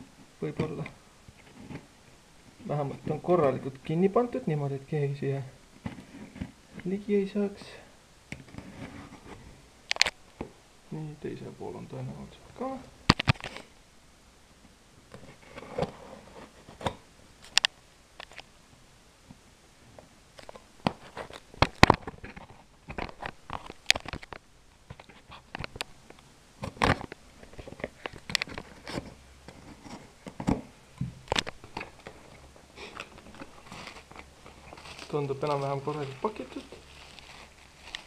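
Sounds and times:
cardboard packaging tearing: 32.9s - 38.0s.

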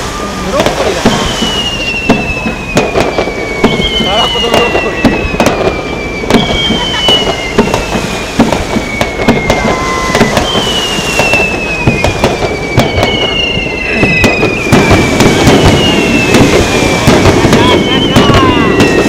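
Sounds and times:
falling firework whistles: 0.0s - 19.0s
fireworks bangs: 0.0s - 19.0s.

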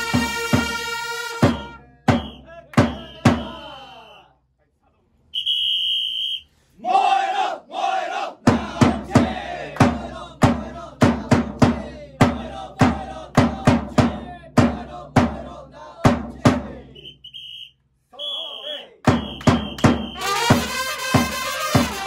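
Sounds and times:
bass drum beats: 0.0s - 3.7s, 8.4s - 16.9s, 19.1s - 22.0s
whistle blast: 0.0s - 4.3s, 5.3s - 6.6s, 17.0s - 22.0s
group chanting in rhythm: 6.8s - 17.0s
shouted calls: 17.0s - 20.6s.

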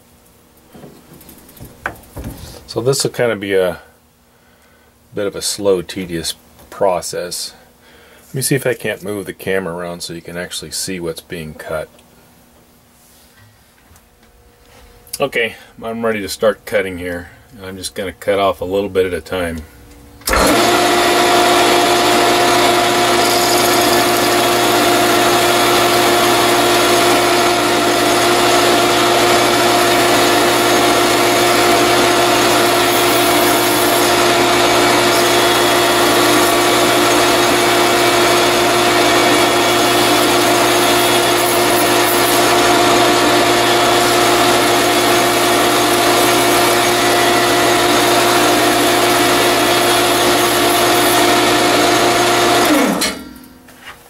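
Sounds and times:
metal lathe motor whine: 20.2s - 53.2s
lathe tool cutting metal: 20.3s - 53.2s.

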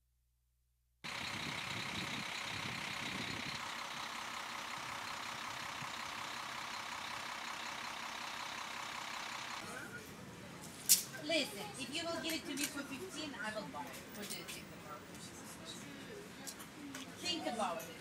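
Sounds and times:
coach bus idling: 1.0s - 10.6s.

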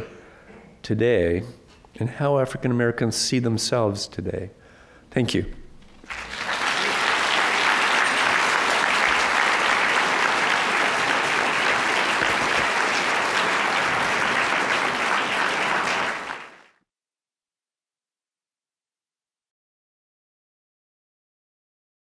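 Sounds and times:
audience applauding: 6.0s - 16.7s.

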